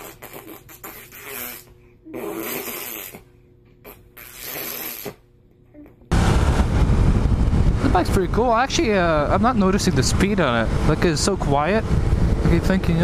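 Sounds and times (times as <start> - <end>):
breathy mouth noises: 0.0 - 6.1.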